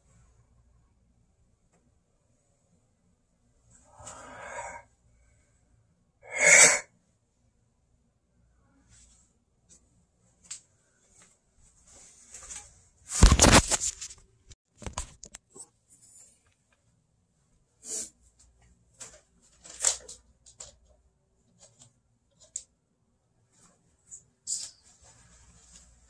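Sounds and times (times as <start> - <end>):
rustling handling noise: 10.4 - 16.7, 18.4 - 22.6, 23.5 - 26.0.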